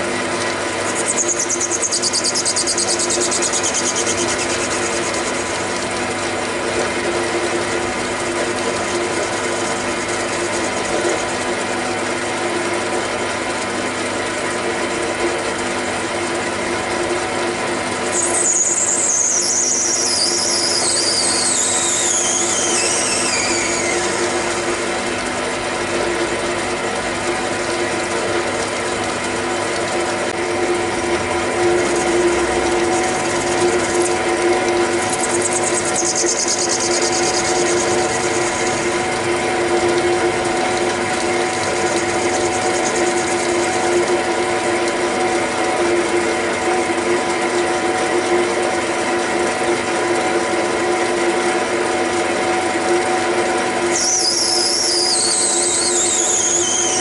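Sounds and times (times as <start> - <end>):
metal lathe running: 0.0 - 57.0
high-pitched cutting squeal: 0.9 - 5.6, 18.1 - 24.9, 35.1 - 39.0, 53.9 - 57.0.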